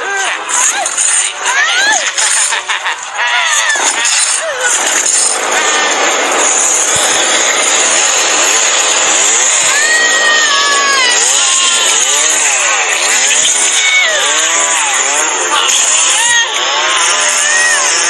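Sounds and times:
chainsaw revving: 3.6s - 18.0s
person screaming: 9.6s - 12.0s, 13.6s - 14.6s, 15.5s - 18.0s.

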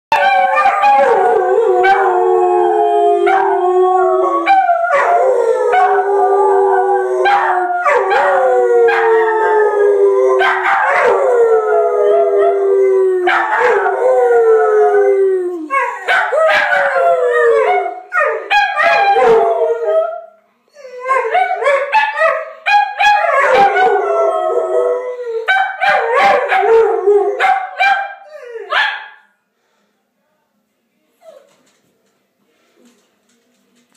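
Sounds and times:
dogs howling: 0.1s - 20.2s, 20.8s - 28.8s.

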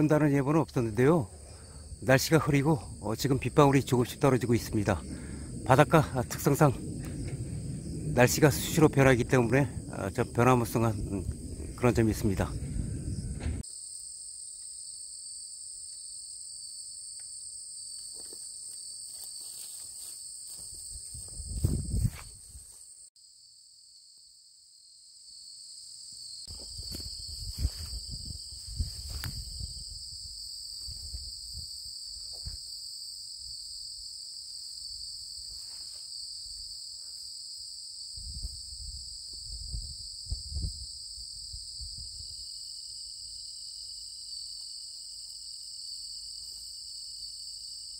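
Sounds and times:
crickets and insects chirping: 0.0s - 47.9s
low rumbles and thumps on microphone: 4.9s - 13.6s, 20.8s - 22.6s, 26.5s - 30.0s, 38.2s - 40.9s.

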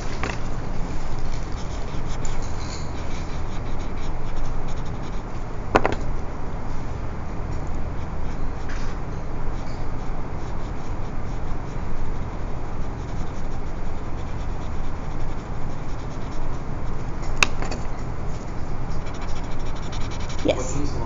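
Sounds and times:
pencil shading on paper: 7.8s - 17.3s, 18.3s - 21.0s.

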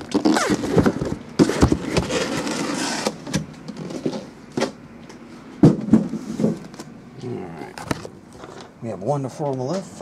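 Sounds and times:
boxes scraping on cardboard: 0.2s - 3.2s.

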